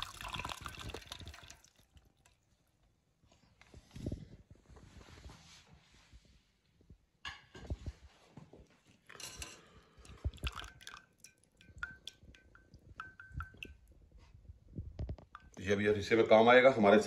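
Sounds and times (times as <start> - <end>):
liquid draining splash: 0.0 - 2.4, 10.0 - 13.8
metal strainer clinking on pot: 10.5 - 13.7.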